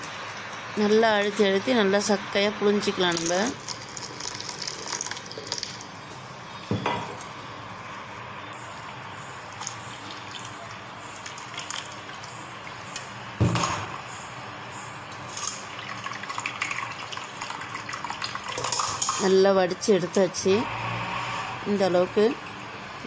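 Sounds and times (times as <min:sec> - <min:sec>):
liquid trickling into steel pot: 0:03.1 - 0:06.0, 0:08.8 - 0:12.4, 0:15.3 - 0:19.2
sudden knock: 0:13.4 - 0:13.9.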